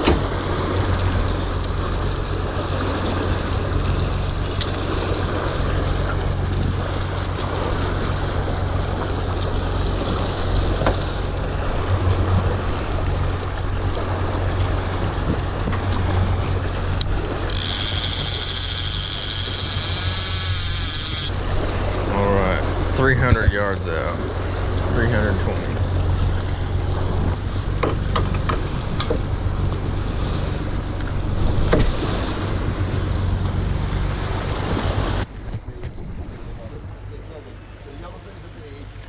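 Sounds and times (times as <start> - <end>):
boat motor humming: 0.0 - 39.0
water rushing past hull: 0.0 - 39.0
sharp high-pitched buzz: 17.5 - 21.3.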